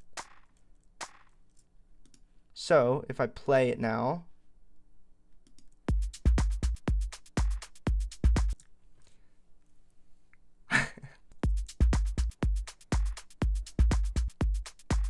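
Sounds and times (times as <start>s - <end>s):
house drum loop: 0.0s - 0.4s, 5.9s - 8.6s, 11.4s - 15.0s
reversed percussion sample: 0.0s - 1.3s, 5.9s - 8.6s, 11.4s - 15.0s.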